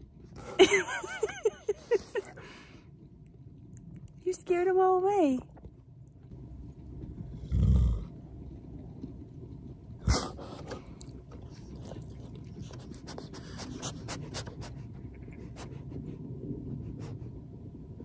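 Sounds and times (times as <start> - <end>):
dog panting: 10.2 - 17.4.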